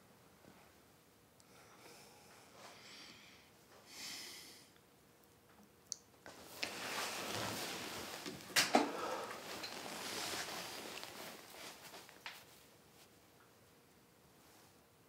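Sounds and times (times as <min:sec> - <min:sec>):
man breathing heavily while asleep: 0:01.5 - 0:04.8, 0:08.8 - 0:10.6.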